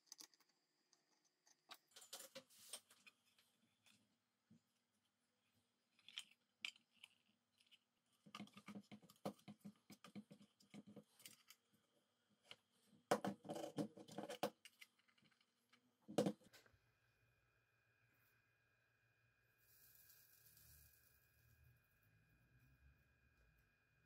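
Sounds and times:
small parts clicking and scratching: 0.0 - 4.1, 5.9 - 11.7, 13.4 - 15.8, 19.7 - 21.7.

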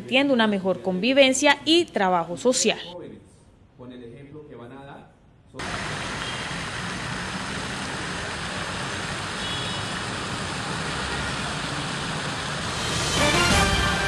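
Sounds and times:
road traffic: 5.6 - 14.0.

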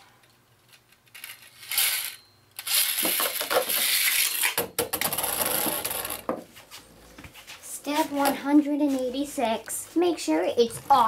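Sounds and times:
spinning top scraping on plastic: 1.1 - 6.3.

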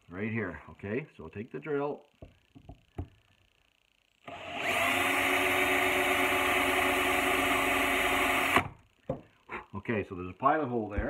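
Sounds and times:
electric drill whining: 4.2 - 8.7.

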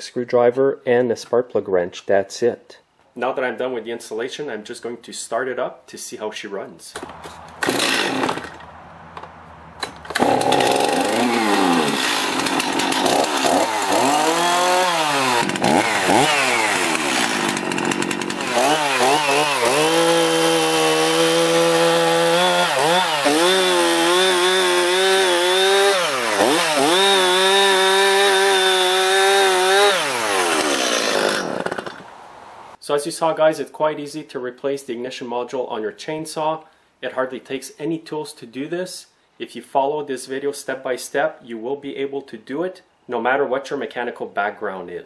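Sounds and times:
chainsaw revving and cutting: 7.3 - 8.6, 9.8 - 32.1.

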